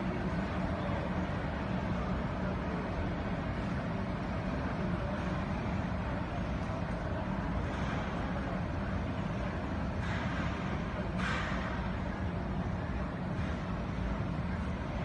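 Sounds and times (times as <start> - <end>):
ship machinery hum and rumble: 0.0 - 15.0.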